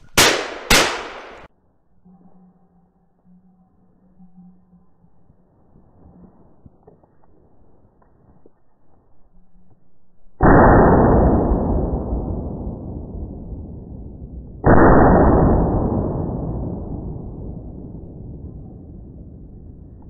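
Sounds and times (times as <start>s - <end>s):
slowed shotgun booms: 0.0s - 1.5s, 10.4s - 20.0s.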